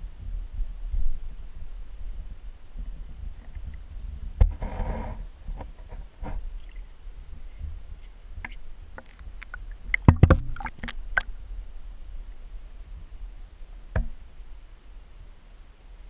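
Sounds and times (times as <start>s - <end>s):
low steady rumble: 0.0s - 16.0s
sharp clicks underwater: 8.4s - 11.3s.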